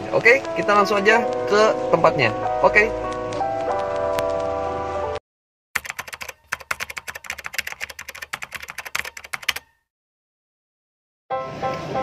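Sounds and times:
keyboard typing clicks: 5.8 - 9.8.

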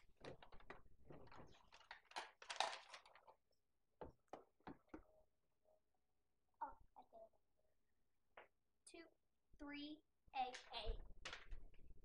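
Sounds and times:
paper rustling: 0.2 - 3.4
plastic toy pieces clicking: 1.7 - 3.3.

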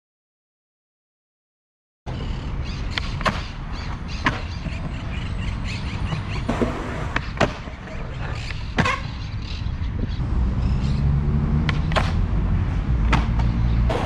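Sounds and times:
skateboard rolling on concrete: 2.1 - 10.3, 11.3 - 14.0
skateboard clacks: 2.9 - 5.2, 6.1 - 9.2, 11.7 - 12.2, 13.0 - 14.0.

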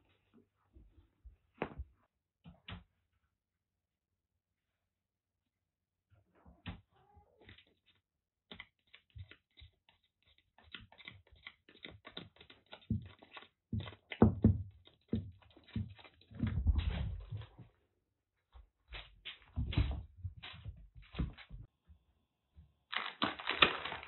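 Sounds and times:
kitten scratching with claws: 8.6 - 16.4.

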